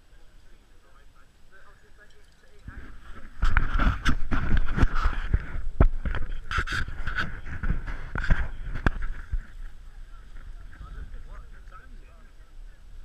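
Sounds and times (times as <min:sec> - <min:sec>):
wind buffeting microphone: 0:02.6 - 0:13.0.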